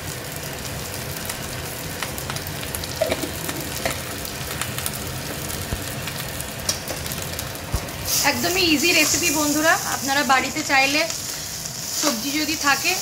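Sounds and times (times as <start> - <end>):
rice sizzling in a wok: 0.0 - 13.0.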